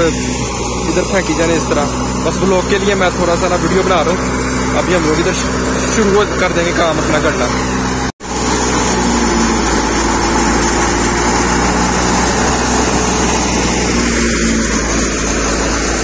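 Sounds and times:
thresher machine droning: 0.0 - 16.0.

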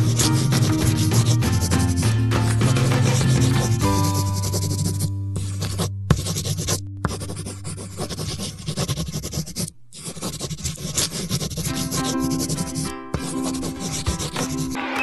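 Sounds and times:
background music: 0.0 - 8.6, 11.7 - 15.0
marker scratching on paper: 0.0 - 14.8.

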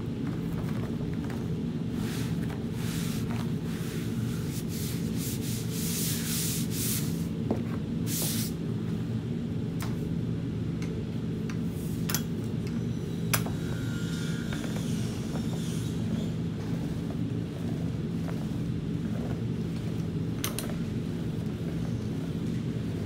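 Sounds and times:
roller on rubber membrane: 0.0 - 8.5, 14.6 - 23.0
steady low hum: 0.0 - 23.0.

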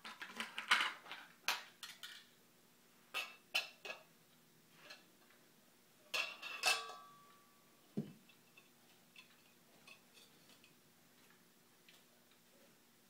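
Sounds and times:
kitchen utensils clinking: 6.1 - 7.3.

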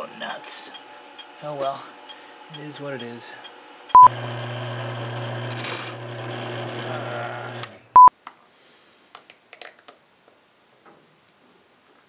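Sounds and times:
drill press boring wood: 0.5 - 8.0.

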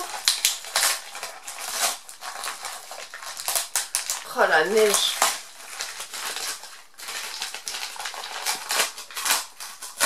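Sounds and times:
wrapping paper crinkling: 0.0 - 10.0.

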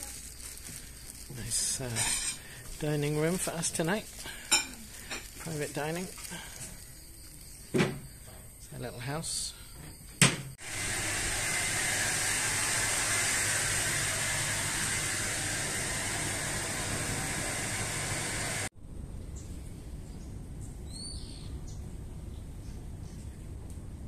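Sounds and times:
steady hiss: 0.0 - 9.8, 10.6 - 18.7.

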